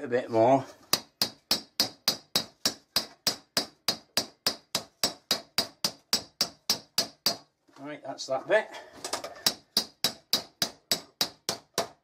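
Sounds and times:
hammer striking sheet metal: 0.9s - 7.5s, 9.4s - 12.0s.

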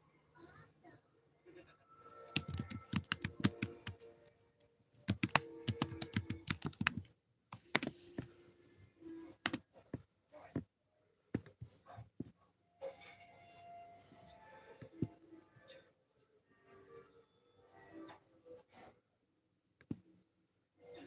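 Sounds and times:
typing on a computer keyboard: 2.1s - 4.0s, 5.0s - 7.9s.

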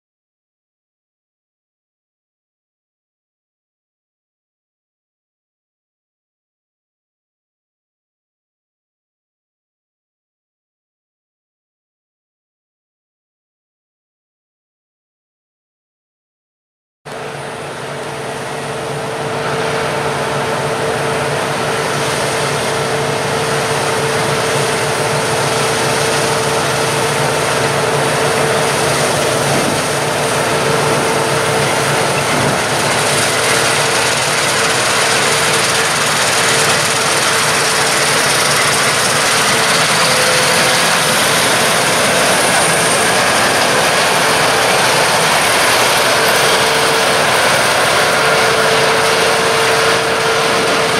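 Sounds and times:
combine harvester engine drone: 17.1s - 50.9s.

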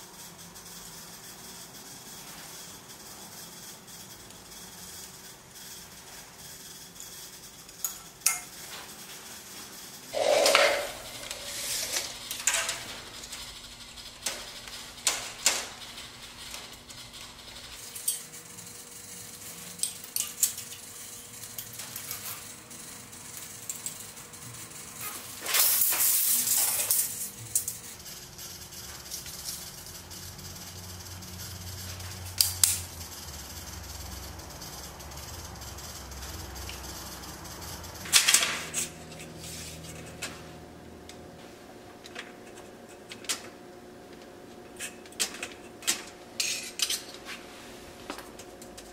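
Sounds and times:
metal scraping: 10.2s - 13.1s.

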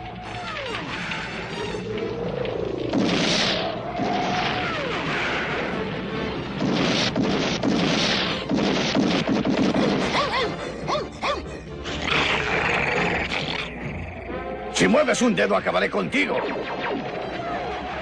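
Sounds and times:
cartoon explosions: 0.0s - 10.6s, 15.6s - 18.0s
rapid gunfire: 2.9s - 5.3s, 6.6s - 10.4s
laser gun zaps: 2.9s - 5.4s.

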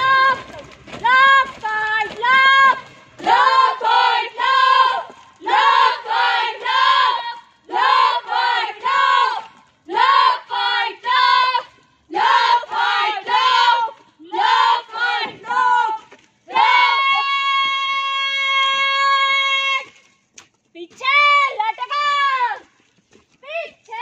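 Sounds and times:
women chanting in unison: 0.0s - 17.0s.

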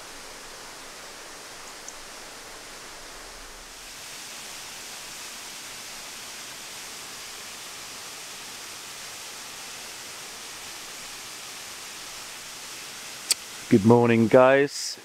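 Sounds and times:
waterfall rushing: 0.0s - 14.3s.

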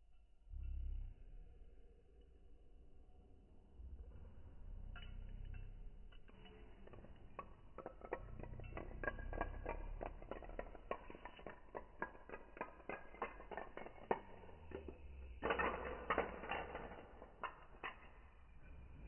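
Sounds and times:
dominoes clicking on stone floor: 6.3s - 18.2s.

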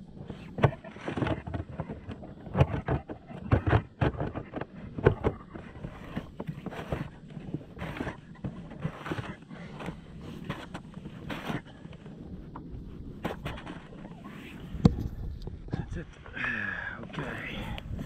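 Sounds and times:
wind buffeting microphone: 17.3s - 18.0s.

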